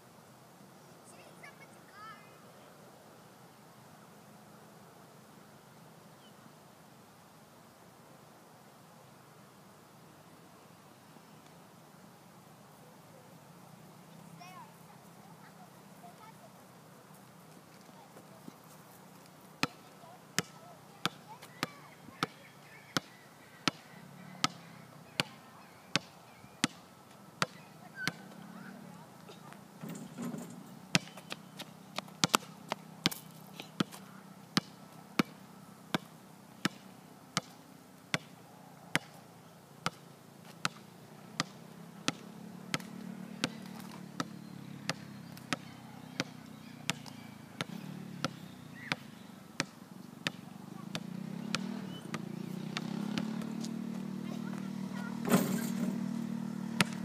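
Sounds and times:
faint low murmur: 0:08.6 - 0:39.8.

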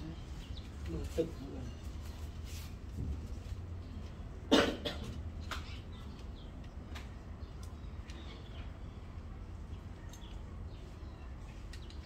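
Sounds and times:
person coughing: 0:04.5 - 0:05.1.

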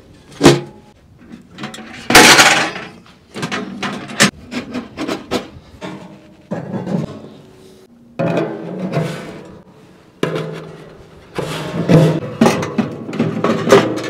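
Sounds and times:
metal pipes clanking: 0:00.3 - 0:07.5, 0:08.2 - 0:14.0.

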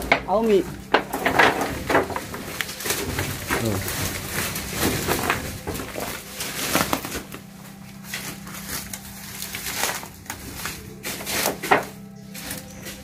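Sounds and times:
footsteps in dry leaves: 0:00.0 - 0:13.0
steady low hum: 0:00.0 - 0:13.0
twigs cracking: 0:00.0 - 0:13.0.

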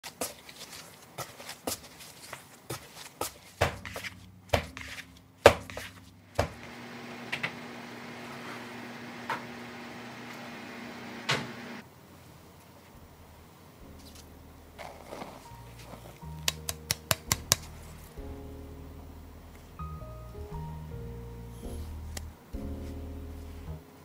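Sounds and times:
electric oven humming: 0:06.4 - 0:11.8
dough slapped on wooden board: 0:16.4 - 0:17.7.

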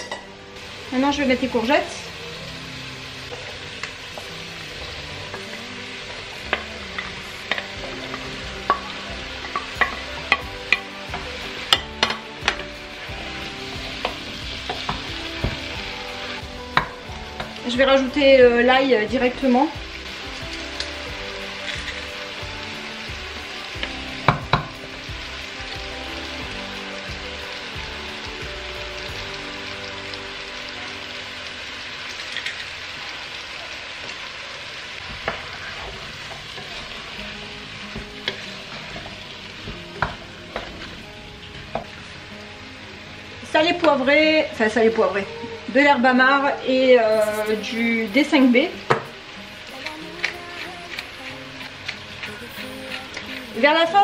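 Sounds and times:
vegetables sizzling in a pot: 0:00.0 - 0:54.0
wooden spoon stirring: 0:49.5 - 0:54.0.

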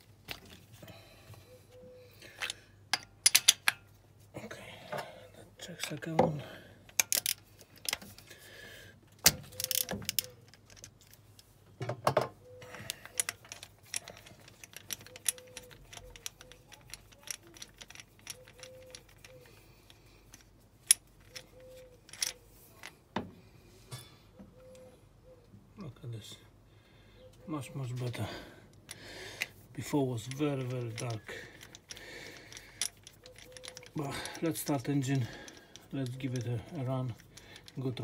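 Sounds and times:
metal tools clinking: 0:02.3 - 0:03.9, 0:09.4 - 0:11.3, 0:12.6 - 0:23.0, 0:28.2 - 0:38.0
ratchet wrench clicking: 0:07.0 - 0:07.4, 0:09.4 - 0:10.9, 0:12.9 - 0:22.4, 0:30.2 - 0:37.8.

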